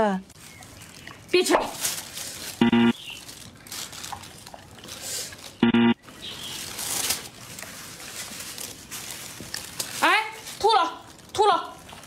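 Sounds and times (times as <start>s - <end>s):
steady buzzing tone: 2.6s - 2.9s, 5.6s - 6.0s
dog chewing food: 4.0s - 5.6s.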